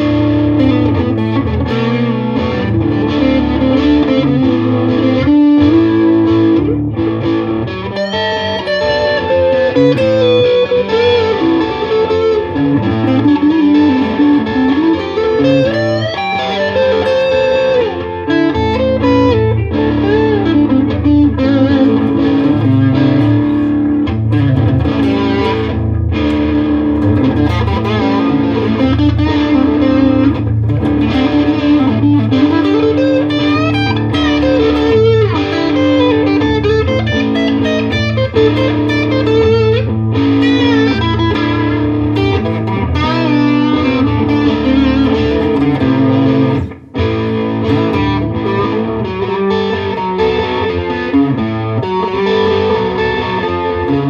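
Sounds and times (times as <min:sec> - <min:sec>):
blues-rock electric guitar lead: 0:00.0 - 0:54.0
looped rhythm backing: 0:08.2 - 0:49.3.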